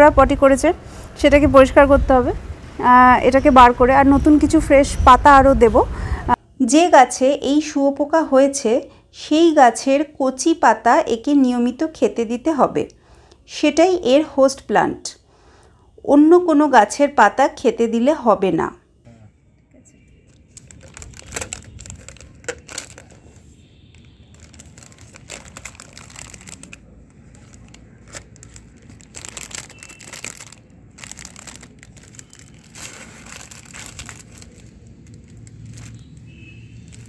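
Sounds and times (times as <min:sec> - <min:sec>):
plastic film crinkling: 0:20.3 - 0:37.0.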